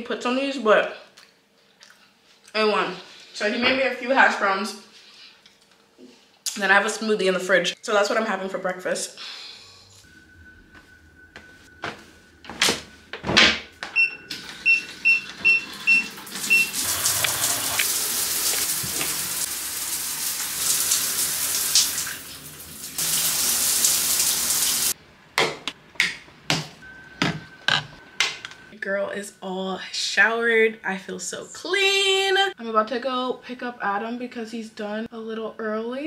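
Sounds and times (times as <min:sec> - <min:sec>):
shower water spraying: 0:15.7 - 0:25.0.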